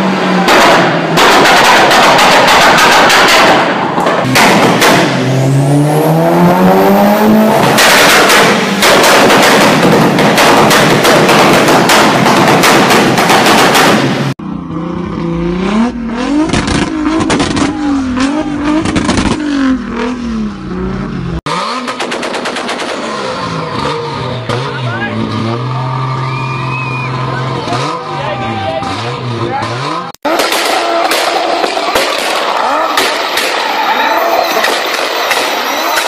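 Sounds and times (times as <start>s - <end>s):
rapid exhaust bangs: 0.0s - 28.2s
exhaust crackles: 0.0s - 36.0s
exhaust popping rapidly: 0.5s - 5.3s, 7.5s - 14.4s, 16.4s - 19.7s
engine revving under full throttle: 3.6s - 10.2s, 13.6s - 31.1s.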